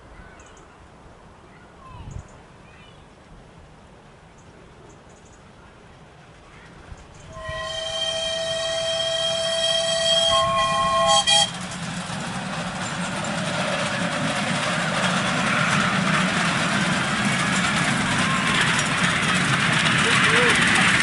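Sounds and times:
train rumbling through tunnel: 0:05.2 - 0:21.0
steam locomotive whistle: 0:07.3 - 0:11.7, 0:18.0 - 0:19.0.

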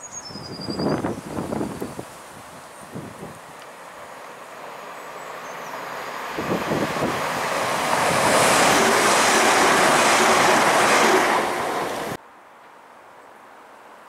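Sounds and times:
train passing at speed: 0:02.6 - 0:12.2.

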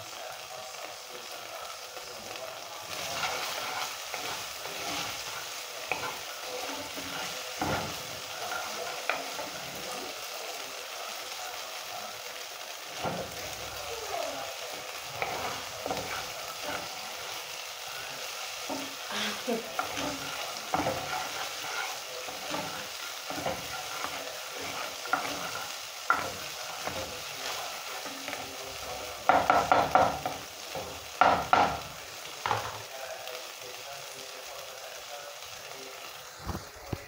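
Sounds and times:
food sizzling in a frying pan: 0:00.0 - 0:37.0
wooden spoon scraping a pan: 0:02.9 - 0:10.0, 0:14.7 - 0:32.8.

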